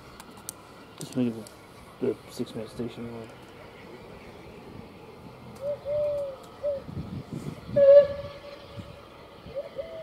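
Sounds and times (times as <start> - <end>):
dove cooing: 5.6 - 6.9, 9.5 - 10.0.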